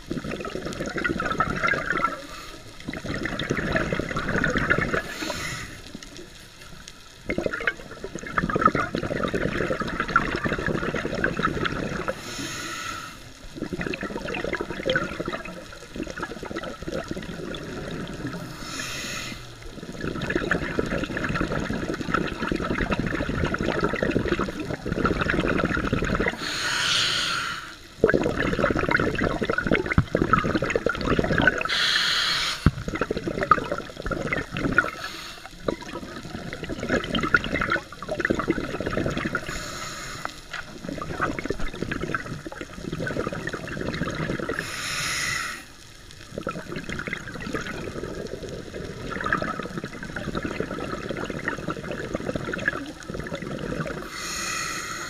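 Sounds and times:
exhaled air bubbling underwater: 0.0s - 55.0s
air hissing on inhale: 5.0s - 6.0s, 12.1s - 13.3s, 18.4s - 19.6s, 26.3s - 27.9s, 31.6s - 32.8s, 34.8s - 35.6s, 39.4s - 40.6s, 44.4s - 45.8s, 53.9s - 55.0s.

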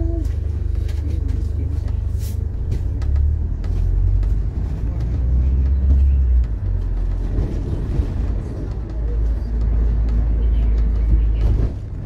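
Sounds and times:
bus engine and body rumbling: 0.0s - 12.0s.

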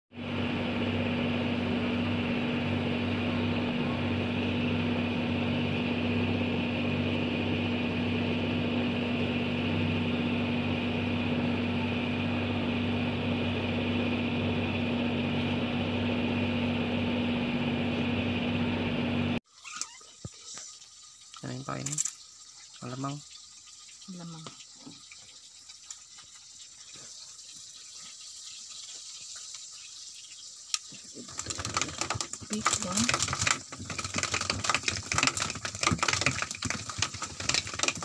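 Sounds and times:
boat engine droning: 0.2s - 19.4s.

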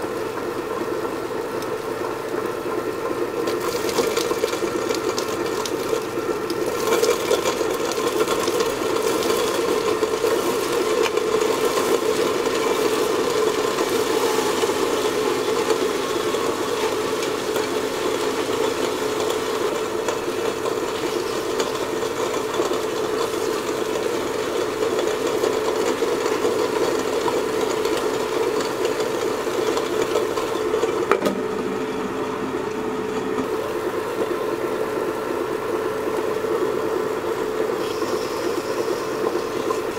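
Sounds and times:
motor humming: 0.0s - 39.9s
stone rollers rattling in drum: 3.5s - 31.2s.

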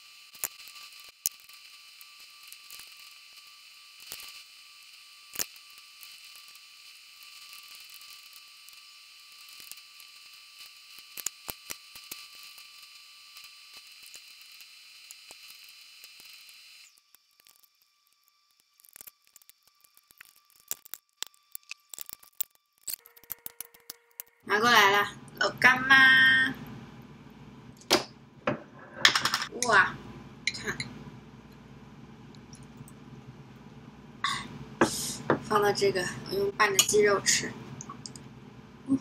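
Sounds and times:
steady high hiss: 13.3s - 39.0s.

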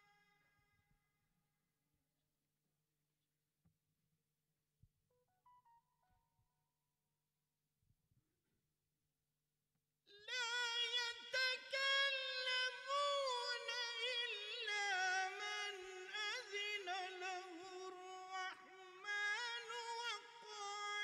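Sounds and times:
solo voice chanting: 10.1s - 21.0s.

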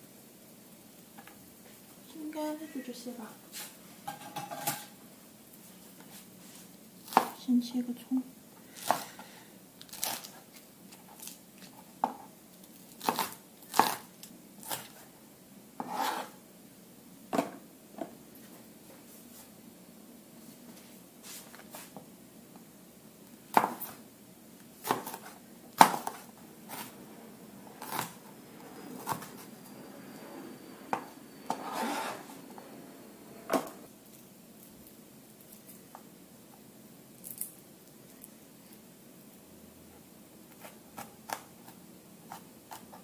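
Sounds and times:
cleaver scraping board: 15.8s - 16.4s, 30.9s - 32.4s.

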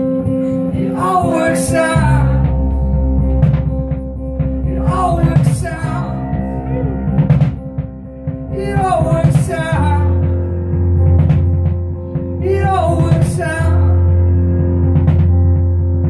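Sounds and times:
man singing: 0.0s - 3.1s, 4.7s - 6.9s, 8.5s - 10.7s, 12.4s - 14.4s
rock band playing: 0.0s - 16.0s.

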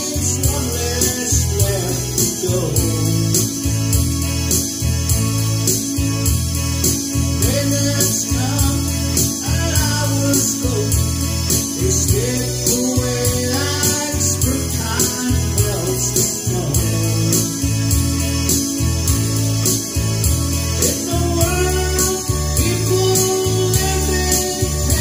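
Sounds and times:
person singing: 0.0s - 4.1s, 7.3s - 18.4s, 20.6s - 25.0s.

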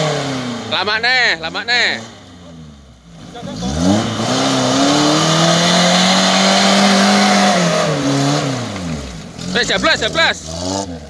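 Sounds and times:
off-road vehicle engine revving: 0.0s - 11.0s
tyres churning mud: 3.2s - 11.0s.

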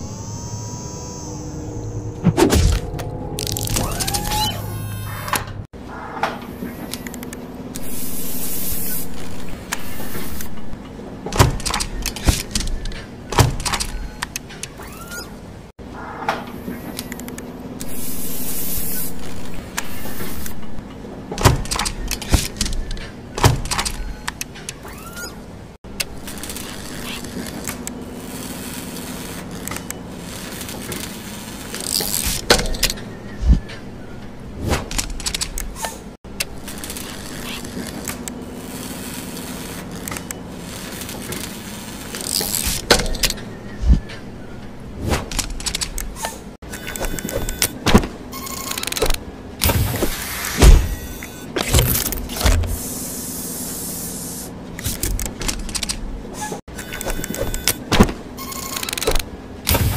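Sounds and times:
steady electric hum: 0.0s - 5.6s
paint spraying hiss: 7.8s - 9.3s, 52.7s - 54.5s
machine thumps: 49.6s - 52.8s.

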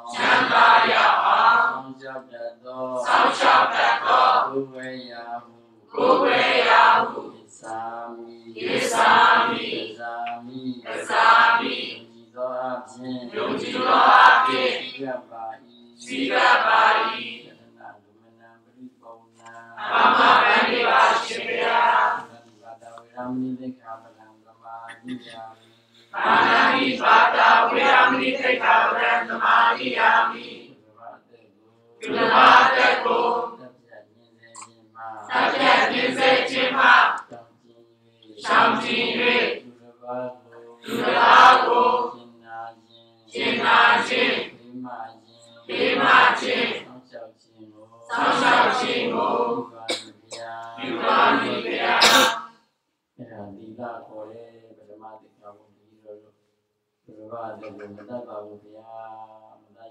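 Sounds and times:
group of voices chanting: 0.0s - 2.0s, 3.0s - 4.6s, 5.9s - 7.8s, 8.6s - 10.0s, 10.8s - 12.0s, 13.2s - 15.1s, 16.0s - 17.5s, 19.8s - 22.3s, 26.1s - 30.8s, 32.0s - 33.7s, 35.2s - 37.4s, 38.4s - 39.7s, 40.8s - 42.3s, 43.3s - 44.6s, 45.4s - 47.0s, 48.0s - 52.6s.

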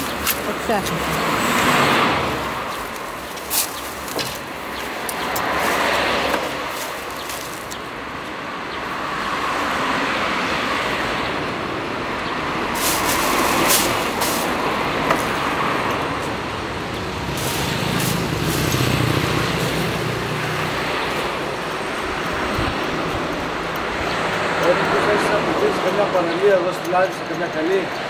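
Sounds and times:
road traffic passing: 0.0s - 28.0s.

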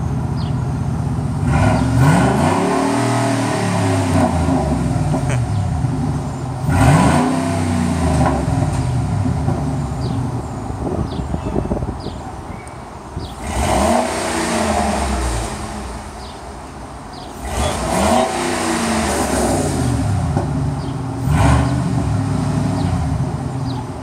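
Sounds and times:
engine idling: 0.0s - 2.2s
truck engine revving: 1.2s - 11.2s, 13.2s - 24.0s.

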